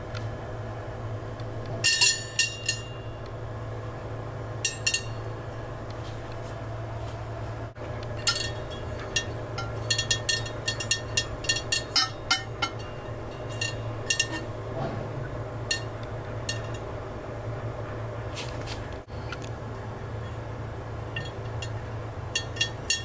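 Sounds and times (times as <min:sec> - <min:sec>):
low hum: 0:00.0 - 0:23.0
clinks on metal wire rack: 0:01.8 - 0:03.2, 0:04.6 - 0:05.3, 0:08.0 - 0:16.9, 0:21.1 - 0:23.0.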